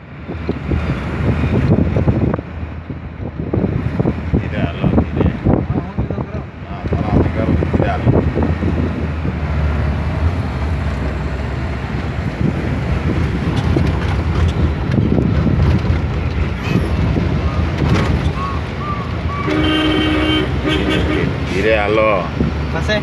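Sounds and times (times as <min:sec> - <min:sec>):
car engine and road rumble: 0:00.0 - 0:23.0
wind noise: 0:00.0 - 0:23.0
car horn honk: 0:19.3 - 0:21.5.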